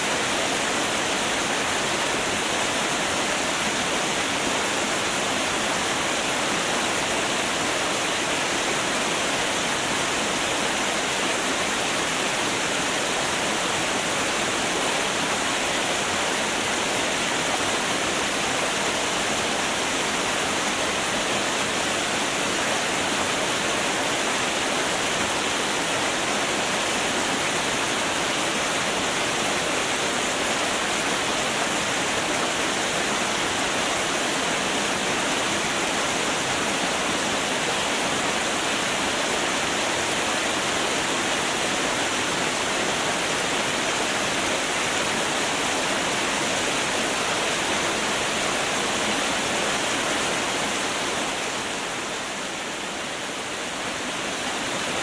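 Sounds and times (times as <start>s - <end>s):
waterfall rushing: 0.0s - 55.0s.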